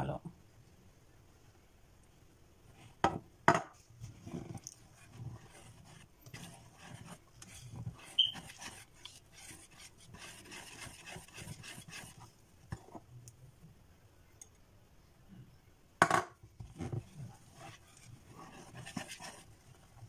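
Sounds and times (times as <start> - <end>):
whisk scraping plastic bowl: 4.0 - 13.0, 16.6 - 20.0.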